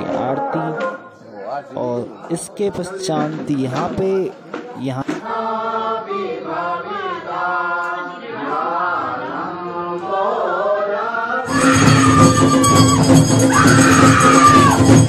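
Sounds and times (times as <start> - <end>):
devotional chanting: 2.4 - 15.0
loud music: 11.5 - 15.0.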